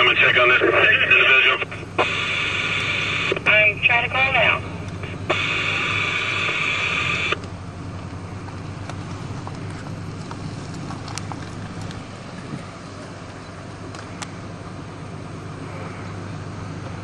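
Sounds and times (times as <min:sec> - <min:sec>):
scanner radio static hiss: 0:00.0 - 0:07.5
idling vehicles and road traffic: 0:00.0 - 0:17.0.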